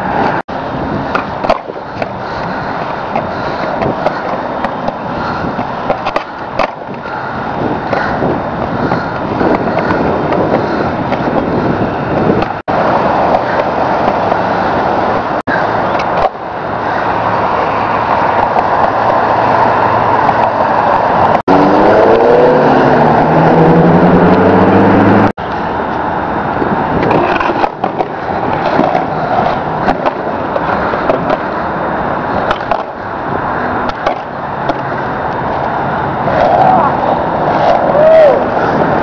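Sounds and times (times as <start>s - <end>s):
skateboard wheels rolling on concrete: 0.0s - 39.0s
skateboard clacks: 1.0s - 7.1s, 7.8s - 14.5s, 15.9s - 16.4s, 27.0s - 31.5s, 32.3s - 33.0s, 33.8s - 39.0s
engine rising in pitch: 19.2s - 25.4s.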